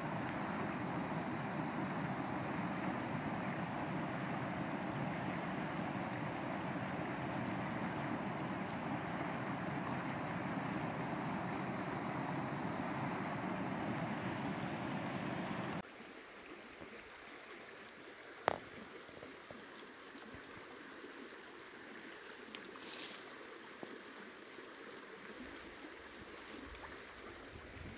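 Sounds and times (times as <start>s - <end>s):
river rushing over rocks: 0.0s - 15.8s.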